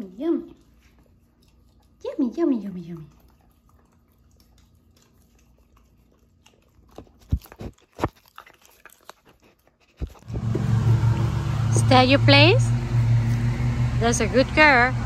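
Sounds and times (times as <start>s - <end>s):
puppy chewing crunchy treat: 0.5s - 11.3s
loud low engine drone: 10.3s - 15.0s.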